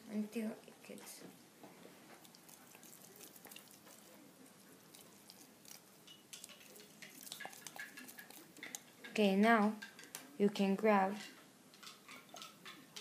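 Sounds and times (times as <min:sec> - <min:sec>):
stick stirring in beaker: 0:02.5 - 0:10.2.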